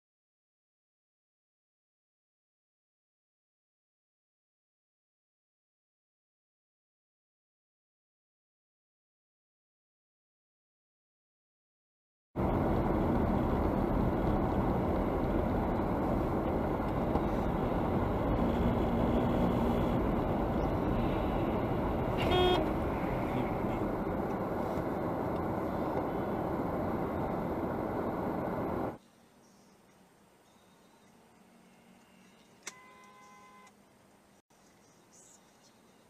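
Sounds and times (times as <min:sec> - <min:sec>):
car road and engine noise: 0:12.4 - 0:29.0
car horn honk: 0:22.0 - 0:23.8.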